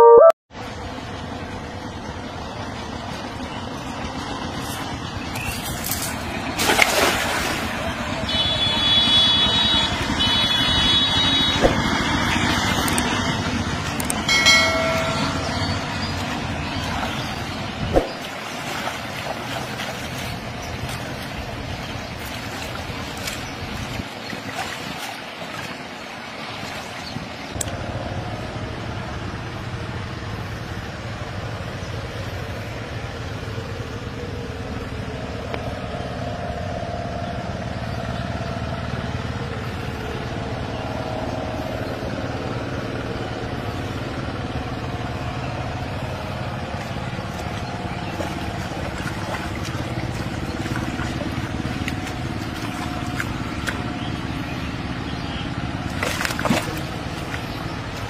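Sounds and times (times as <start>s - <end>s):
hands splashing water: 5.5s - 8.0s, 14.8s - 27.0s, 46.7s - 54.1s, 55.8s - 58.0s.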